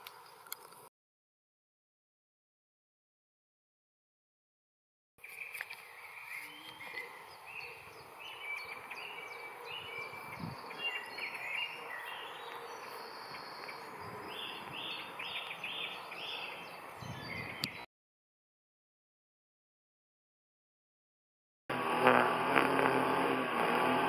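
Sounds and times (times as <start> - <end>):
birds singing: 5.2 - 17.9.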